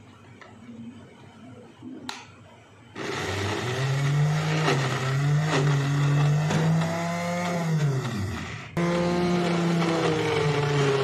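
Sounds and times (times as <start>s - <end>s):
electric food chopper motor: 3.0s - 11.0s.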